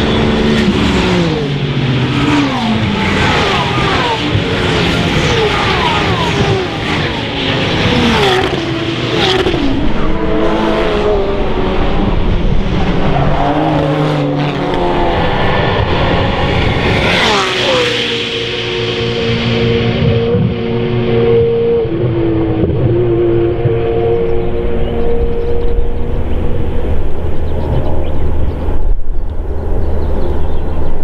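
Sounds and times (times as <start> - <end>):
race cars driving past: 0.0 - 31.0.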